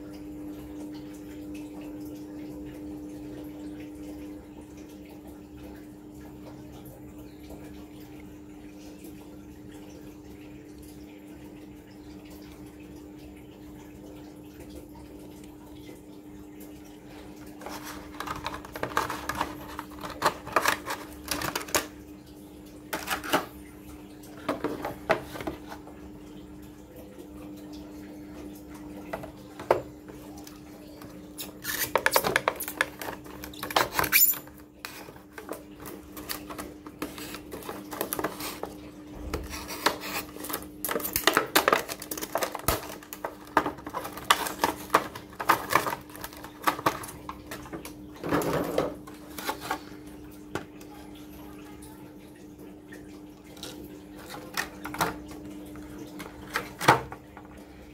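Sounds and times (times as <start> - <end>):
plastic packaging crinkling: 17.6 - 21.9, 39.4 - 47.3.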